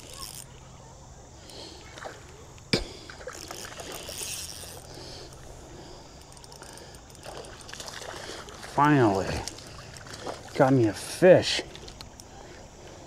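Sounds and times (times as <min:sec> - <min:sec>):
fish splashing in water: 0:02.8 - 0:04.3, 0:06.6 - 0:10.8.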